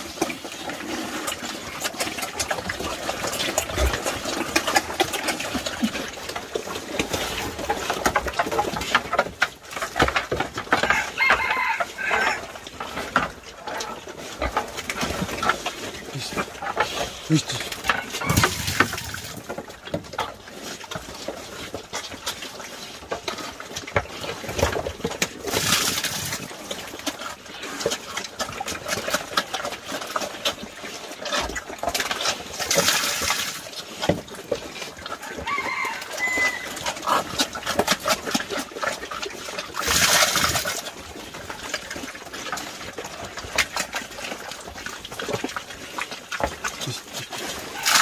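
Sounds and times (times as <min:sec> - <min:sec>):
boar slurping and chomping feed: 0:00.0 - 0:48.0.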